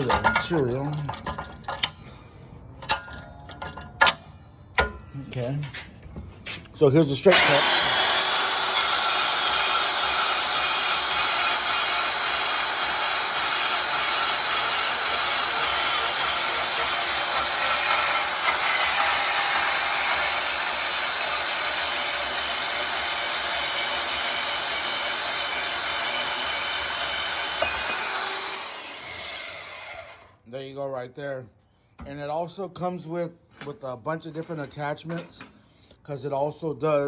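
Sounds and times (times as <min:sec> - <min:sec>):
band saw cutting metal tubing: 0:07.2 - 0:30.4.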